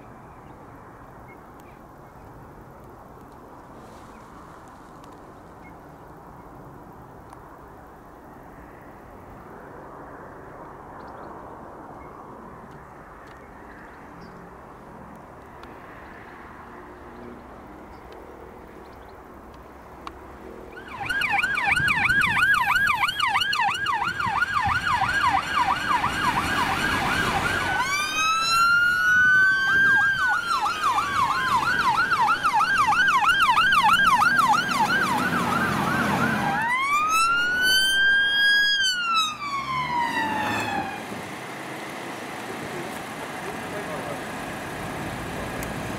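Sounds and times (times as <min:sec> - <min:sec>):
faint outdoor background: 0:00.0 - 0:45.9
siren wail: 0:20.6 - 0:41.1
siren yelp: 0:20.7 - 0:41.0.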